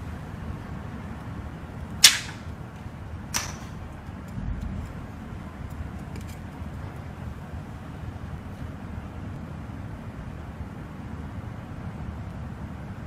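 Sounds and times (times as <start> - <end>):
steady low hum: 0.0 - 13.0
hard parts clicking on metal plate: 3.3 - 4.7.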